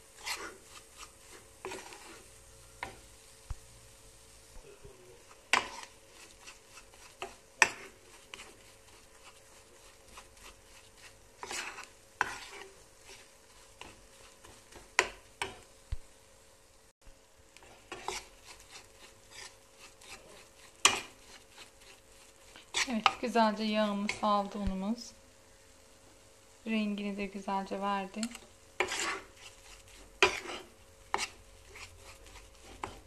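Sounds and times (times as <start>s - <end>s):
metal spoon scraping a pan: 0.0s - 3.1s, 5.3s - 15.7s, 17.6s - 24.5s, 28.1s - 33.0s.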